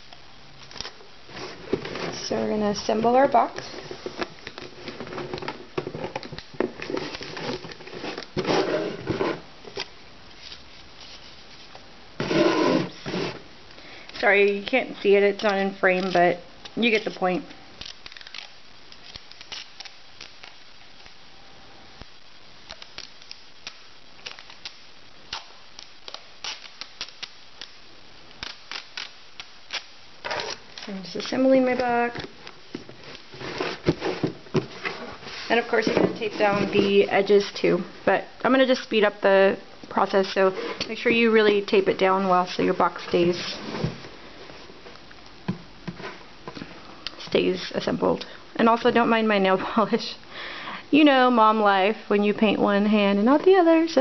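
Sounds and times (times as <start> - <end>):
cardboard box being folded: 6.6 - 9.4, 32.8 - 37.5.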